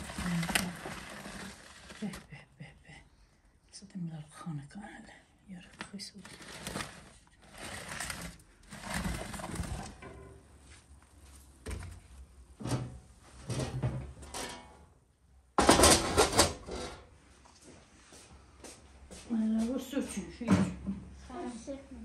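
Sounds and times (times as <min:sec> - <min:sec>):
metal door scrape and clatter: 0:00.0 - 0:02.0, 0:06.4 - 0:10.4, 0:12.6 - 0:14.8, 0:15.6 - 0:17.1.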